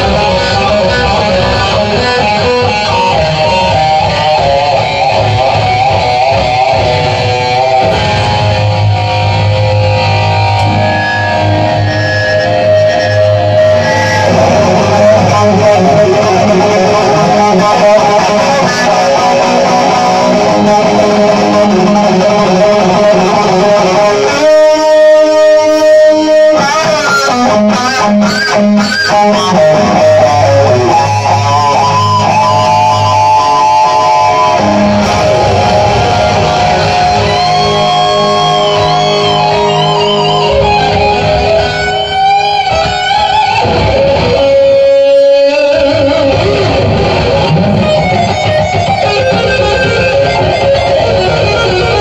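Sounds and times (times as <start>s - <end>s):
bass guitar: 0.0s - 52.0s
drums: 0.0s - 52.0s
electric guitars: 0.0s - 52.0s.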